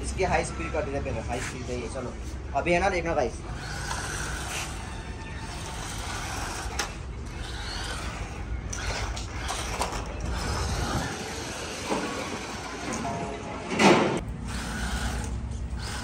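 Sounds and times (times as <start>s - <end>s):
low outdoor rumble: 0.0s - 16.0s
toy car electric motor: 3.5s - 13.0s, 14.4s - 16.0s.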